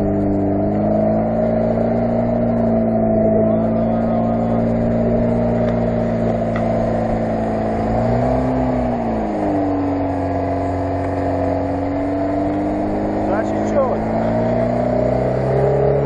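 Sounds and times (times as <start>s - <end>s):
car engine labouring: 0.0s - 16.0s.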